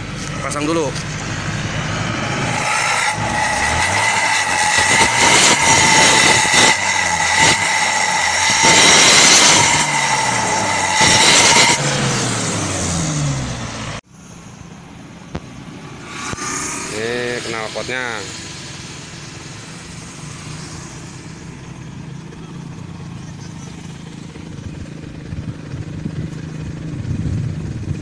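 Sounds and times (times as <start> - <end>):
car engine revving: 0.0 - 14.0, 15.3 - 24.6
jet-like exhaust whistle: 1.8 - 11.9.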